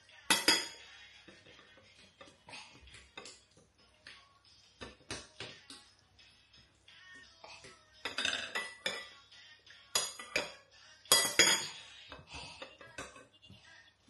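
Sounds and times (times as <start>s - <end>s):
music: 0.0s - 14.0s
metal spoon clinking on dish: 0.3s - 0.8s, 8.0s - 9.2s, 10.0s - 11.8s.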